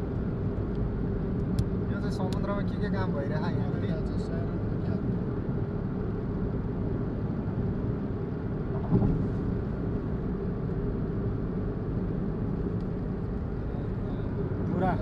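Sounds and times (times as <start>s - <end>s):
car road and engine drone: 0.0s - 15.0s
car bump: 8.7s - 9.4s.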